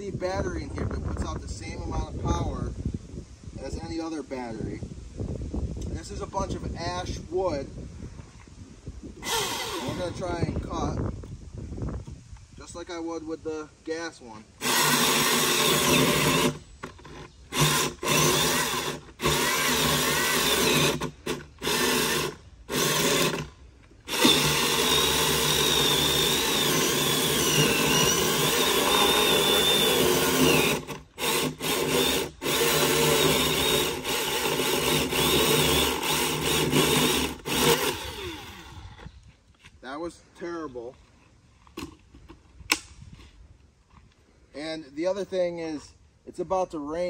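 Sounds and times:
electric chainsaw cutting log: 9.2 - 10.4, 14.6 - 39.1.

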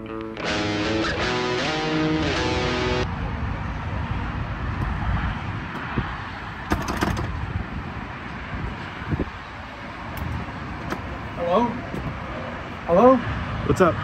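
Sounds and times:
guitar music: 0.0 - 3.1
traffic hum: 0.0 - 14.0
glass door rattling against lock: 6.7 - 7.4.

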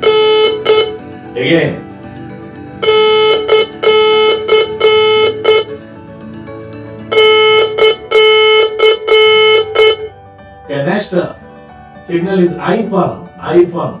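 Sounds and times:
morse code tone: 0.0 - 10.2.

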